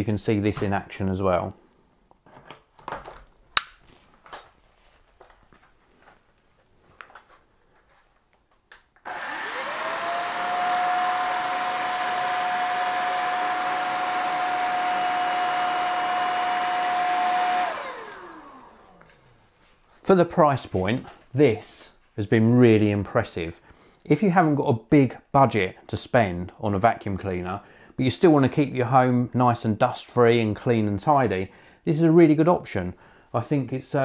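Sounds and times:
vacuum motor whine: 9.1 - 19.3.

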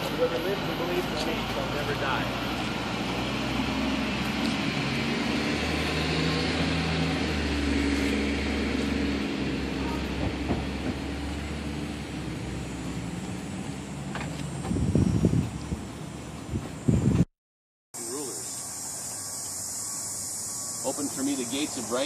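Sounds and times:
vehicle engine idling: 0.0 - 5.2, 8.0 - 17.0.

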